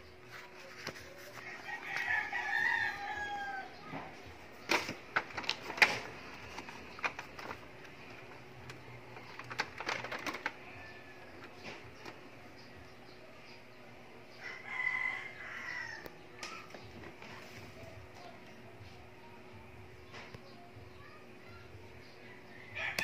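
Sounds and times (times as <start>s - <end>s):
rooster crowing: 1.4s - 3.9s, 14.4s - 16.1s, 22.3s - 23.0s.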